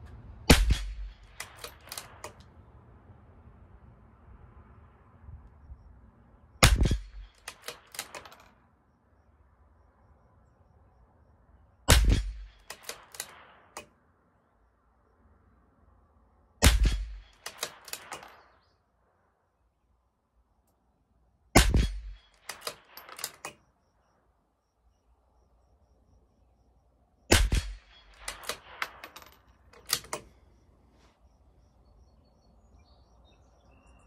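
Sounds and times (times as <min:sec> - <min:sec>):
metallic bolt clicks: 0:00.1 - 0:02.5, 0:06.7 - 0:08.6, 0:11.9 - 0:13.9, 0:16.8 - 0:18.5, 0:21.6 - 0:23.6, 0:27.4 - 0:30.4
rifle shots: 0:00.5 - 0:02.5, 0:06.6 - 0:08.5, 0:11.9 - 0:13.9, 0:16.6 - 0:18.6, 0:21.5 - 0:23.6, 0:27.3 - 0:30.2.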